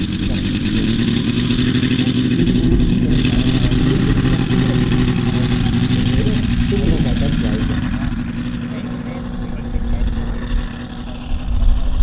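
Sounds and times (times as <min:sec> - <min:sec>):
radial engine and propeller roaring: 0:00.0 - 0:12.0.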